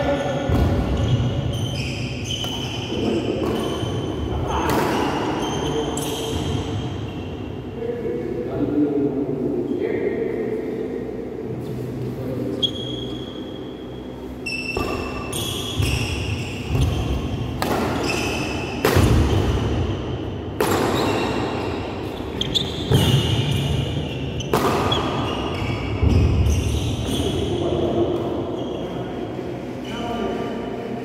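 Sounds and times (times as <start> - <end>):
shoes squeaking on floor: 0.1 - 7.2, 12.5 - 19.6, 20.9 - 29.1
rackets striking shuttlecock: 17.5 - 19.5, 20.6 - 21.3, 24.4 - 25.2.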